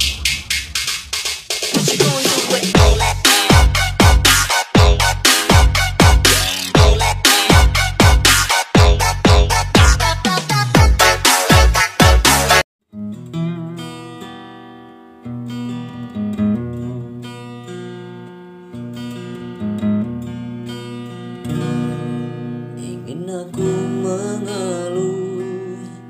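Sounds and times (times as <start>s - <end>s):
person singing: 1.8s - 12.6s, 22.8s - 26.0s
acoustic guitar strumming: 1.8s - 26.0s.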